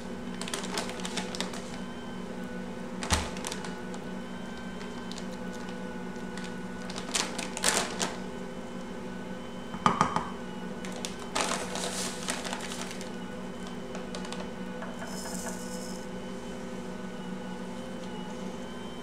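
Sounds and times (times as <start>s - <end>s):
bag rustling: 6.4s - 8.2s, 10.9s - 13.2s
measuring cup knocking: 9.8s - 10.3s, 14.8s - 15.6s
stand mixer motor running: 10.1s - 16.2s.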